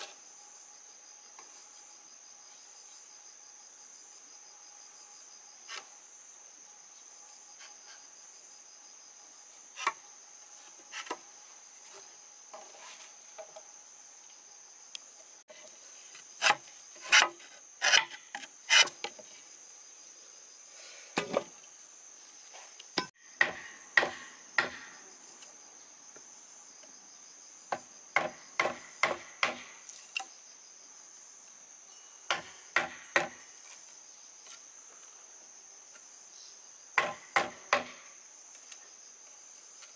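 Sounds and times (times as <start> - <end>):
insects droning: 0.0 - 39.9
wood being chopped with a tool: 16.4 - 19.2, 23.0 - 25.0, 27.7 - 30.3, 32.3 - 33.4, 37.0 - 38.1.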